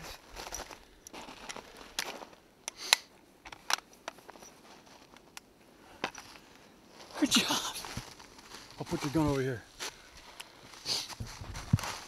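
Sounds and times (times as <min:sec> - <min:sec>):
faint rustling: 0:04.0 - 0:12.0.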